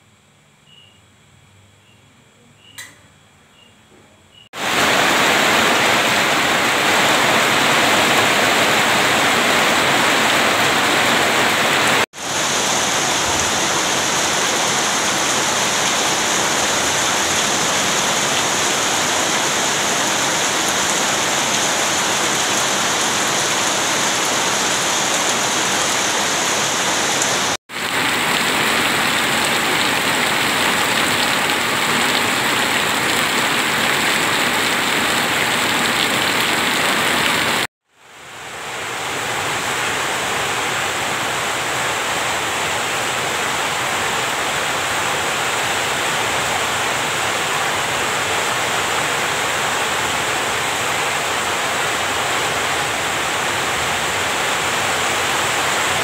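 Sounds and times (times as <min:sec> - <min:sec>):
heavy rain falling: 0:04.6 - 0:37.7, 0:38.3 - 0:56.0
water pouring off roof: 0:04.6 - 0:37.7.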